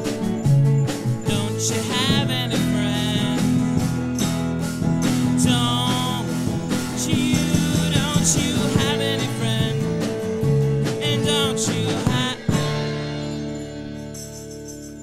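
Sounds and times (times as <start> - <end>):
bass guitar: 0.0 - 15.0
drums: 0.0 - 15.0
electric guitar: 0.0 - 15.0
strummed acoustic guitar: 0.0 - 15.0
man singing: 1.2 - 4.2, 5.1 - 13.4.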